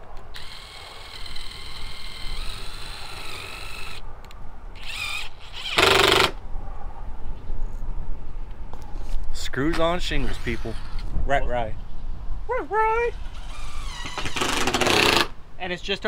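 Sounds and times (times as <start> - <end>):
cordless drill motor whine: 0.3 - 4.0, 4.8 - 6.4.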